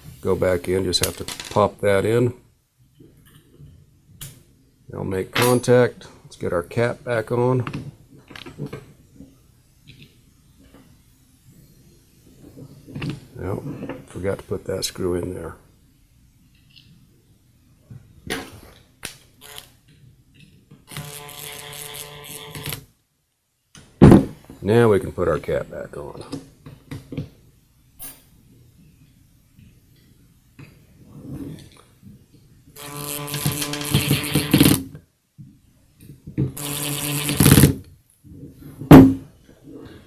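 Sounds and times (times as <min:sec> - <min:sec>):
cordless driver driving a screw: 0:20.9 - 0:22.8, 0:32.8 - 0:34.8, 0:36.6 - 0:37.7
sharp knock: 0:38.9 - 0:39.2.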